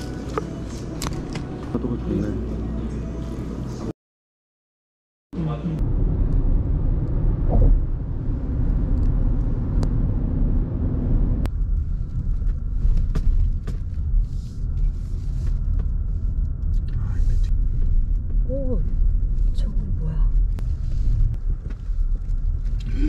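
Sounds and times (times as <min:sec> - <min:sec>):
car tyres and engine rumble: 0:00.0 - 0:03.9, 0:05.4 - 0:23.0.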